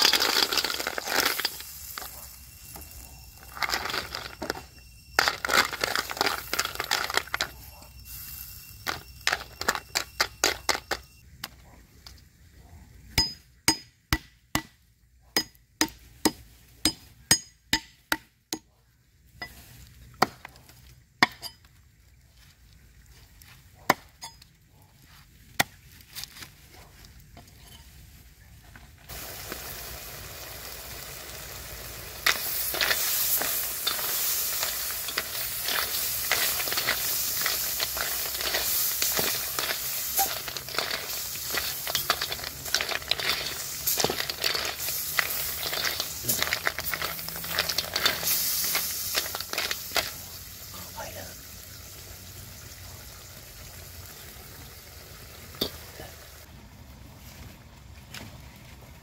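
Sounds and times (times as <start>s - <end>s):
frying sizzle: 0.0s - 7.4s, 29.1s - 56.5s
utensils clicking and clinking: 3.4s - 7.6s, 8.8s - 11.1s, 32.2s - 50.2s
rustling and crunching ingredients: 32.1s - 50.4s.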